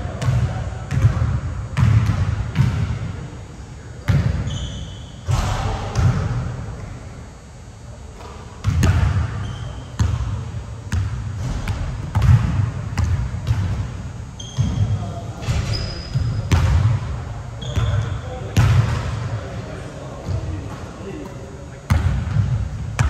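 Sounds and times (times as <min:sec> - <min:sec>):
basketball bouncing on court: 0:00.1 - 0:03.1, 0:04.0 - 0:04.6, 0:05.2 - 0:06.5, 0:08.2 - 0:19.6, 0:20.2 - 0:23.0
sneakers squeaking on floor: 0:04.0 - 0:06.1, 0:08.2 - 0:10.3, 0:13.0 - 0:16.8, 0:17.6 - 0:23.0.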